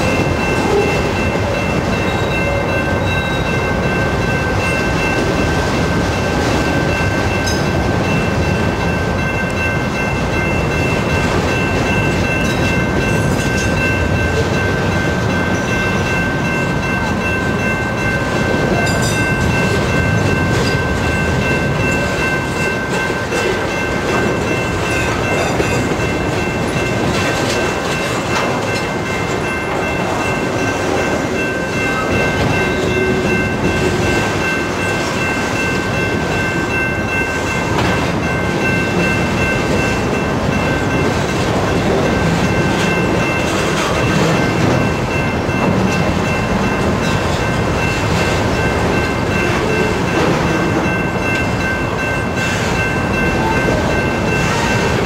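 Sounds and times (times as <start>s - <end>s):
train wheels clattering over rail joints: 18.7s - 31.4s.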